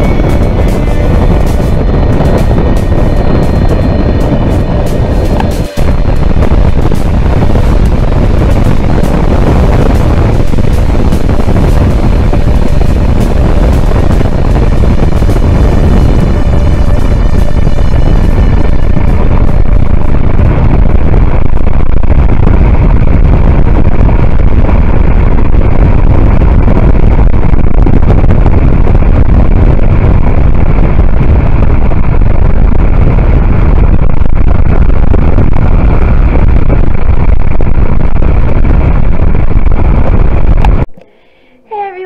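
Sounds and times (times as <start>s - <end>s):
car road noise: 0.0s - 41.0s
wind buffeting microphone: 0.0s - 41.0s.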